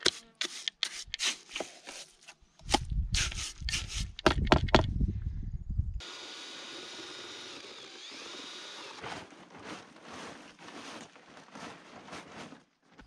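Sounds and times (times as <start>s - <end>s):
low rumble: 4.8s - 6.0s
plastic tarp rustling and crinkling: 9.0s - 13.0s.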